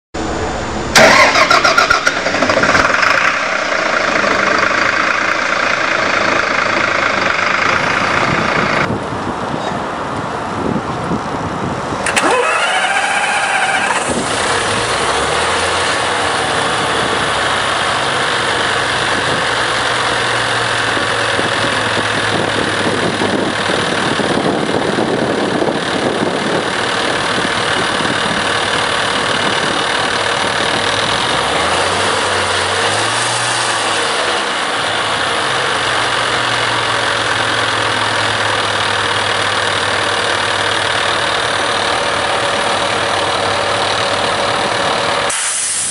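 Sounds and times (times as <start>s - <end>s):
bus engine idling: 0.2s - 45.9s.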